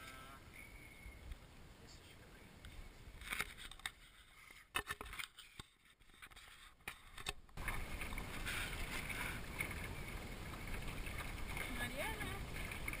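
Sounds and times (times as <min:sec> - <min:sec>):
sailing gear clicks and knocks: 0:03.2 - 0:04.0, 0:04.7 - 0:09.9
rush of wind and water: 0:07.6 - 0:13.0.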